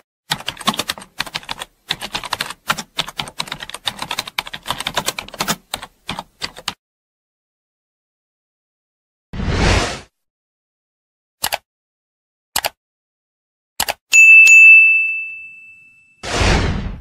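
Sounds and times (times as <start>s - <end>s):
keyboard typing clicks: 11.4s - 11.6s, 12.6s - 12.8s, 13.8s - 14.0s.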